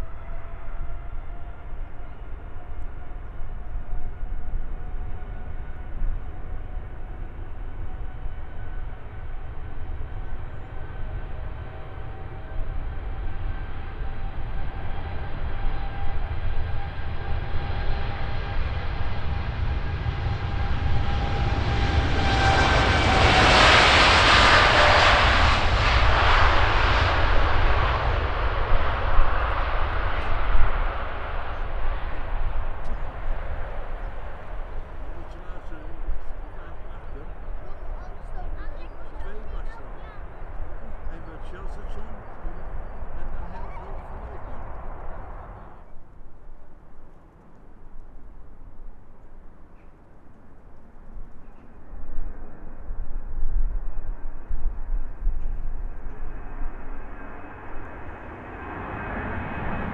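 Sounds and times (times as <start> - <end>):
jet engines whining: 4.6 - 45.9.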